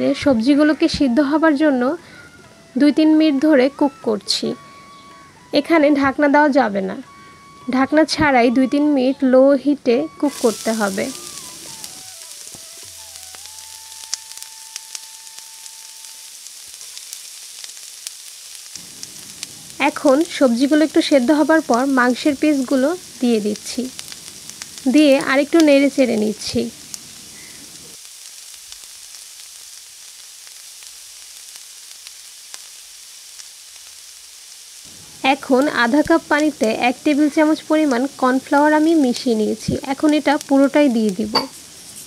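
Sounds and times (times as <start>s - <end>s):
vegetables sizzling in a frying pan: 0.0s - 42.0s
crackling pops: 10.1s - 42.0s.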